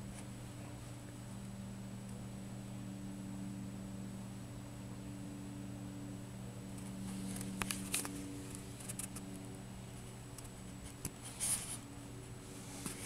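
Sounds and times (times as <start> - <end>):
low steady hum: 0.0 - 13.0
fur brushing microphone: 6.9 - 9.3, 9.9 - 13.0.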